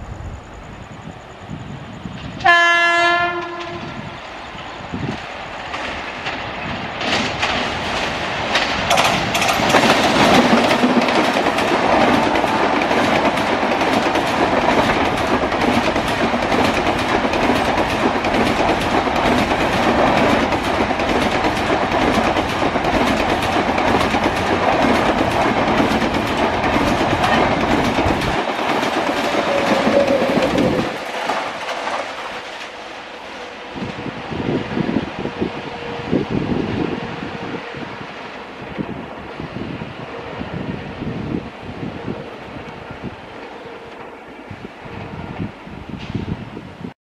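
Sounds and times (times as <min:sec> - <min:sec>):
train coaches rushing past: 0:00.0 - 0:46.9
wheels clacking over rail joints: 0:05.1 - 0:33.2.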